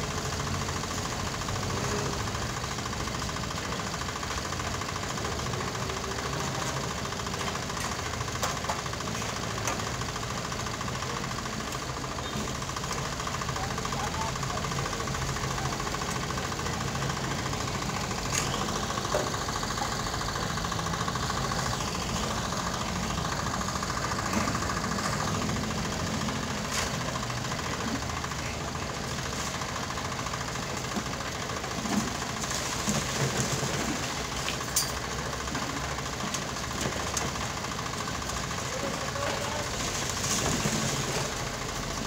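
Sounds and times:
small engine running: 0.0s - 42.0s.

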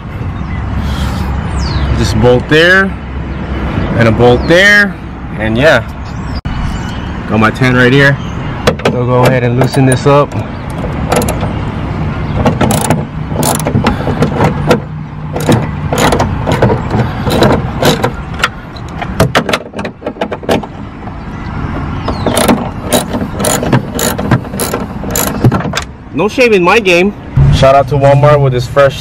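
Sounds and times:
hand ratchet clicking: 12.6s - 14.8s, 22.3s - 25.6s
low hum: 27.3s - 28.8s.

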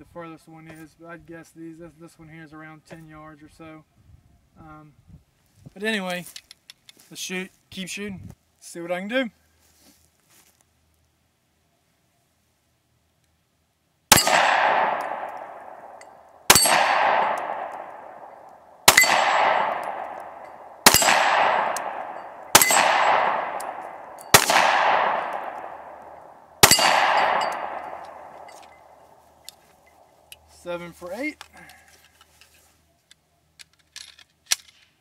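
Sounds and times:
pistol shots: 14.1s - 29.0s
steel target ringing: 14.1s - 29.0s.

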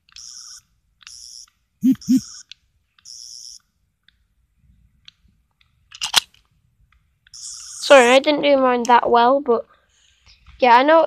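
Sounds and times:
warbling electronic toy sound: 1.8s - 2.4s.

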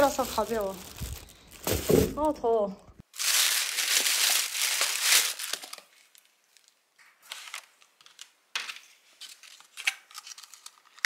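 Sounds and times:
crinkling and rustling: 0.0s - 11.0s.

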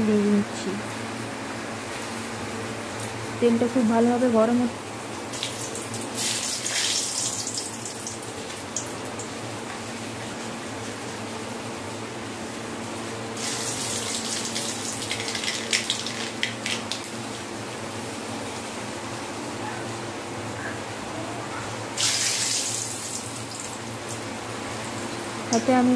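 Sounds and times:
hot oil sizzling in a wok: 5.1s - 17.4s, 22.0s - 25.9s
crackling oil spits: 5.2s - 10.3s, 13.3s - 17.2s, 22.0s - 25.7s.

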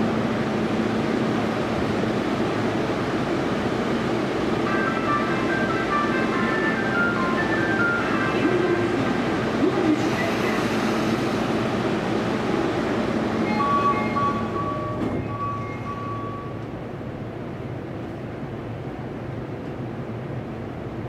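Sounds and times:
subway train noise: 0.0s - 21.0s
train door clunk: 13.4s - 16.8s.

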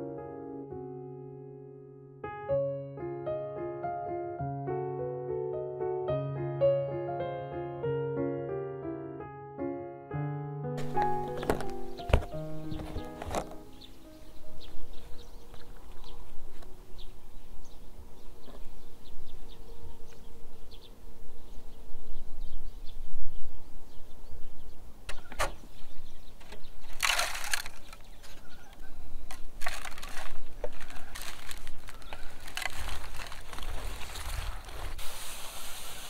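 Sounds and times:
hands rustling potting mix: 10.8s - 13.8s, 29.3s - 36.0s.

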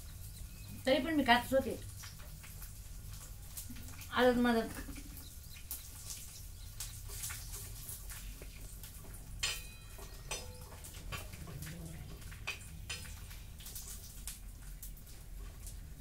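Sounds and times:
ringing clink: 9.4s - 10.7s.

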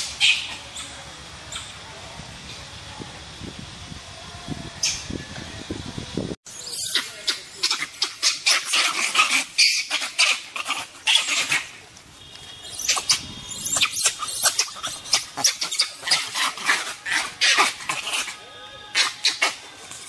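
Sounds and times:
animal squealing: 6.6s - 11.8s, 12.7s - 19.6s.

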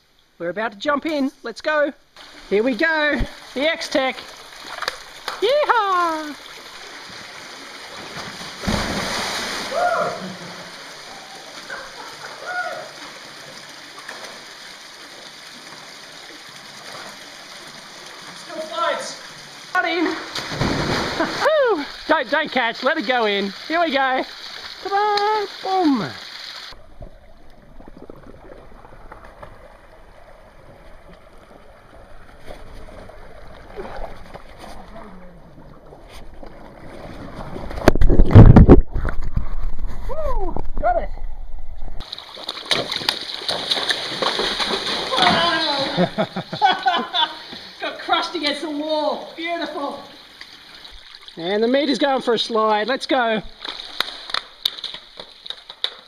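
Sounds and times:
running water rushing: 2.1s - 41.4s, 42.0s - 56.0s
loud splashing: 3.2s - 11.1s, 19.8s - 26.9s, 42.0s - 46.4s
water sloshing around wading person: 25.6s - 38.4s, 42.0s - 47.8s.

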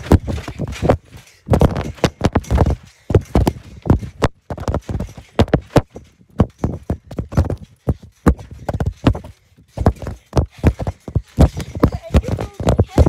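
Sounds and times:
thumps of jumping on trampoline: 0.0s - 13.0s.

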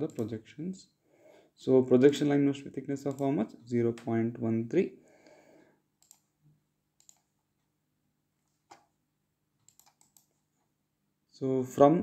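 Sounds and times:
faint computer mouse clicks: 0.1s - 0.3s, 6.0s - 6.3s, 7.0s - 7.3s, 9.6s - 10.3s.

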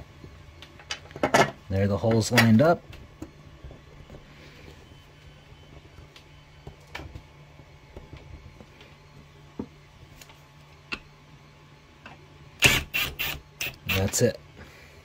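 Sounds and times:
impact driver burst: 12.6s - 14.1s.

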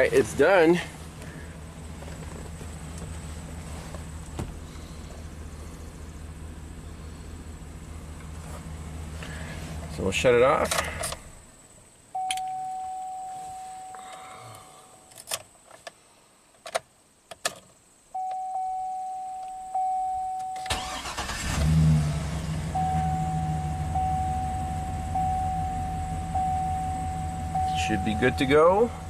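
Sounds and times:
engine idling: 0.0s - 11.4s, 20.6s - 29.0s
dashboard warning chime: 12.1s - 14.2s, 18.2s - 21.2s, 22.7s - 29.0s
engine cranking: 20.6s - 22.1s.

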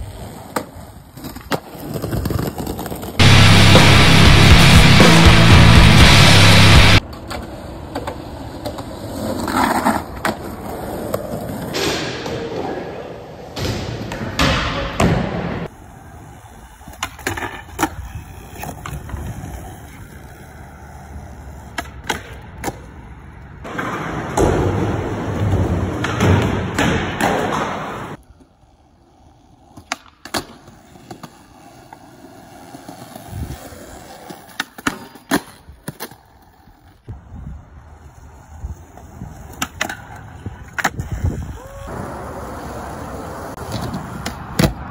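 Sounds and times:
skateboard wheels on concrete: 0.0s - 44.9s
skateboard clacks: 38.9s - 41.3s.

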